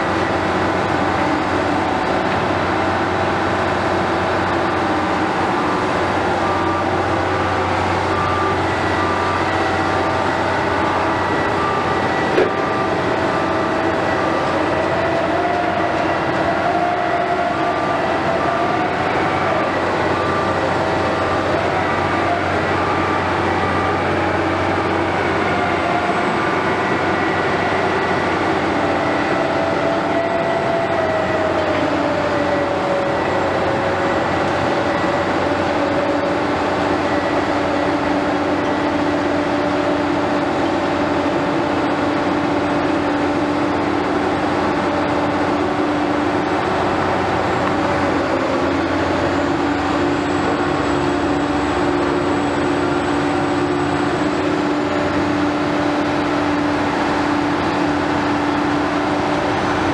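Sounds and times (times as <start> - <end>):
construction machinery diesel drone: 0.0 - 59.9
machinery whining tones: 0.0 - 59.9.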